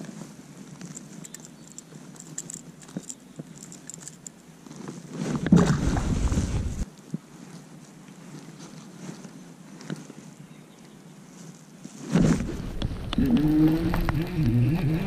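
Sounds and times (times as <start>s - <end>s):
handling noise on microphone: 0.0s - 10.3s, 11.2s - 15.0s
faint metallic hook clinks: 0.9s - 4.4s.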